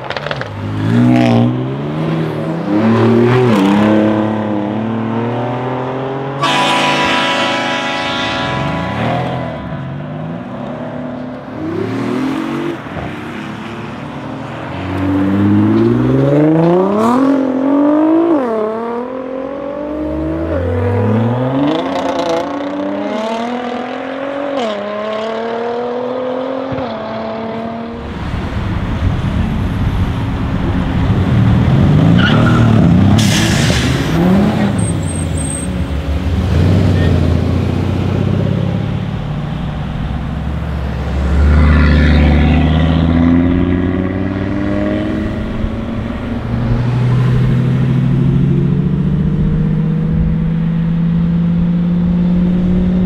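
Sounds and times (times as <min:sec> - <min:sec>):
car engines accelerating: 0:00.0 - 0:53.0
tyre squeal: 0:32.2 - 0:35.8.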